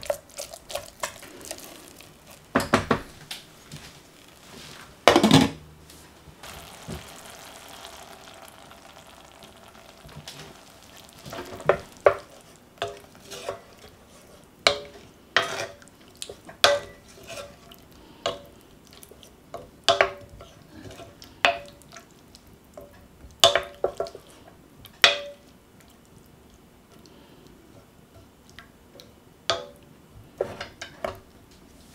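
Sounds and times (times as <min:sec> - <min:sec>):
wooden spoon stirring thick sauce: 0:00.0 - 0:05.1, 0:06.4 - 0:24.4
faint sizzle: 0:00.0 - 0:31.9.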